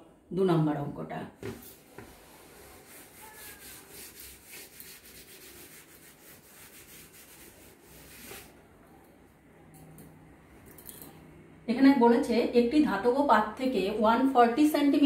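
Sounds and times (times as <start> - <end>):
cloth rag wiping chalkboard: 1.4 - 8.6.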